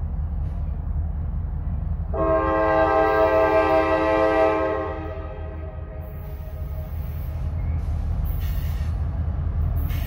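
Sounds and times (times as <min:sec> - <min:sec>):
low locomotive rumble: 0:00.0 - 0:10.0
locomotive air horn blast: 0:02.1 - 0:06.8.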